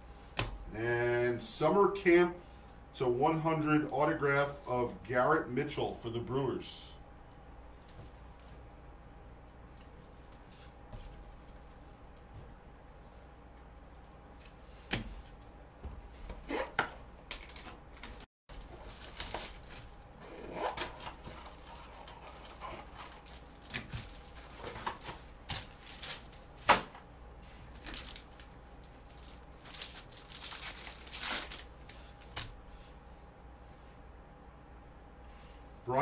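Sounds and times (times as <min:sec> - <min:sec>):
faint steady hum: 0:00.0 - 0:36.0
rustling crinkling and tearing: 0:17.3 - 0:26.6, 0:27.4 - 0:33.0.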